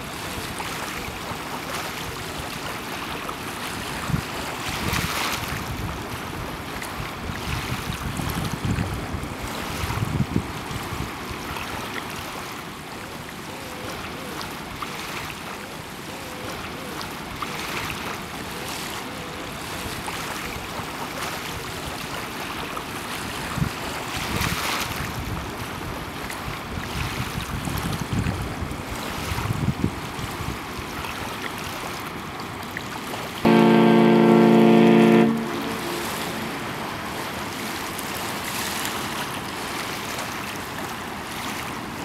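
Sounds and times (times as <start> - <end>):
small waves washing on shore: 0.0 - 42.0
wind buffeting microphone: 3.8 - 11.3, 23.3 - 30.9.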